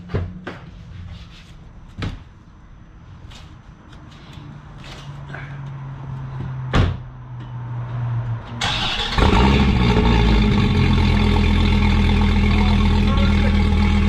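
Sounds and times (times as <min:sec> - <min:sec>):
car engine starting and running: 0:08.1 - 0:14.0.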